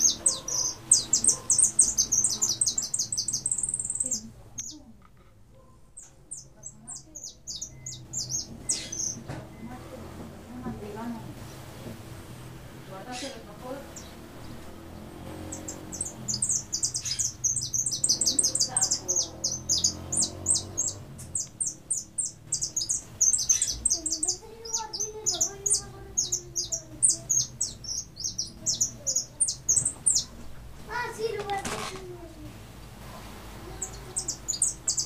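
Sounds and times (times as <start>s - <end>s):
finch twittering and trilling: 0.0s - 4.8s, 5.6s - 35.0s.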